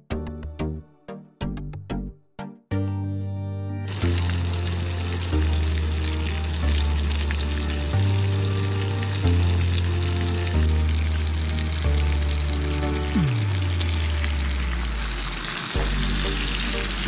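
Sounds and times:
background music with deep bass: 0:00.0 - 0:17.0
gravy sizzling in oil: 0:03.9 - 0:17.0.

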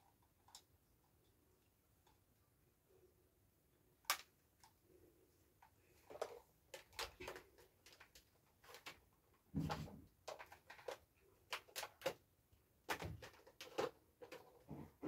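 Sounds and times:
plastic clicks and knocks: 0:05.6 - 0:12.2, 0:12.8 - 0:15.0.

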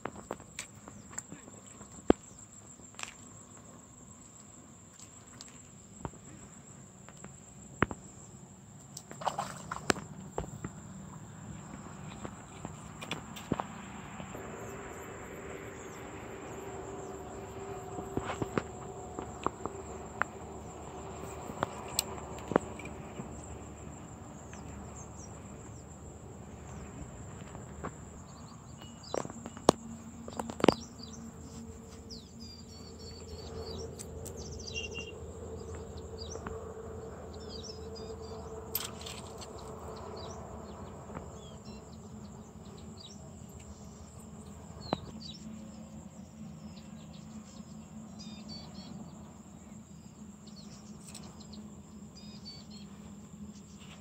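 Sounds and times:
insects droning: 0:00.0 - 0:54.0
birds chirping: 0:11.6 - 0:44.1.

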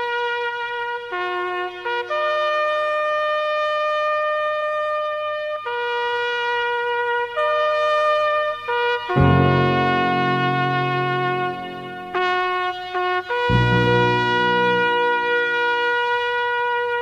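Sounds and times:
reedy wind instrument melody: 0:06.7 - 0:17.0.

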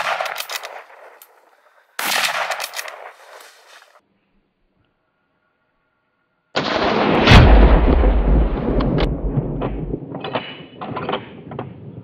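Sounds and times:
rustling: 0:00.1 - 0:04.0
sharp clicks: 0:02.0 - 0:03.5.

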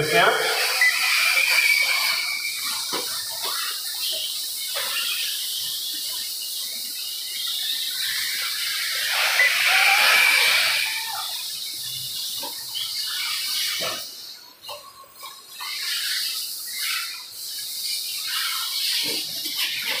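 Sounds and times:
rc car passing close: 0:00.0 - 0:14.4
rc cars motor and tyre hiss: 0:00.0 - 0:20.0.

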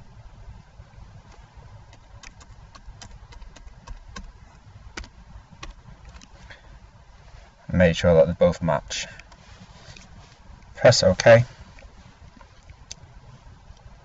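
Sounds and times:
low steady rumble: 0:00.0 - 0:14.0
keyboard keystrokes clicking: 0:01.9 - 0:04.3, 0:05.0 - 0:06.3.

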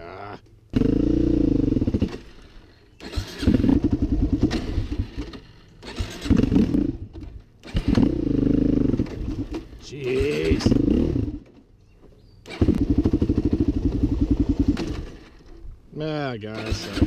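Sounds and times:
atv engine revving: 0:00.0 - 0:17.0.

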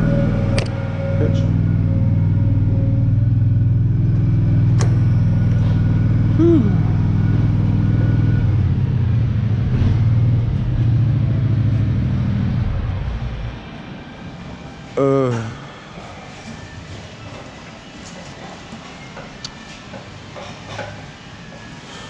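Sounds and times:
diesel engine idling: 0:00.0 - 0:14.8.

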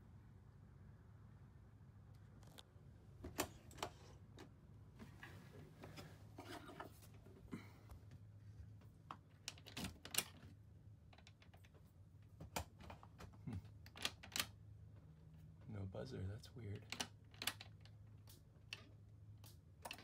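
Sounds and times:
low steady hum: 0:00.0 - 0:20.0
faint clicks and rattles: 0:07.9 - 0:15.1, 0:16.6 - 0:20.0.

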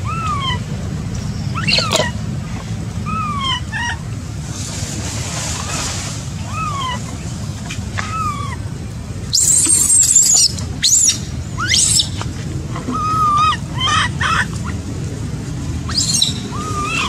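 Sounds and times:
baby monkey screaming: 0:00.0 - 0:00.7, 0:01.4 - 0:02.2, 0:03.0 - 0:04.1, 0:05.6 - 0:07.2, 0:08.0 - 0:08.7, 0:09.3 - 0:12.2, 0:12.8 - 0:14.8, 0:15.8 - 0:17.0
low rumble: 0:00.0 - 0:17.0.

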